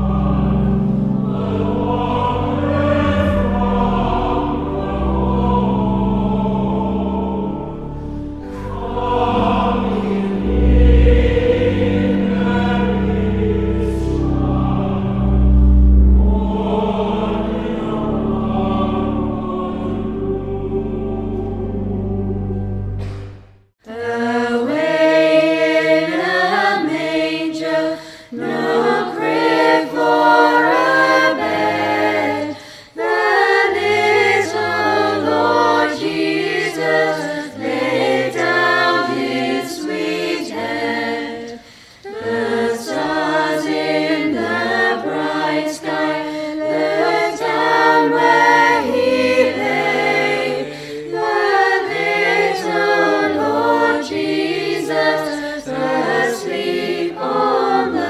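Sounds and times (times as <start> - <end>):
choir singing: 0.0 - 58.0
short breaths: 28.0 - 28.3, 32.5 - 33.0, 41.6 - 42.0.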